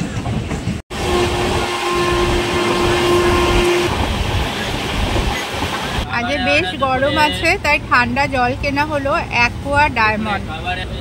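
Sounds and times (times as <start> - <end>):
moving train rumble: 0.0 - 11.0
train horn long note: 0.9 - 4.1.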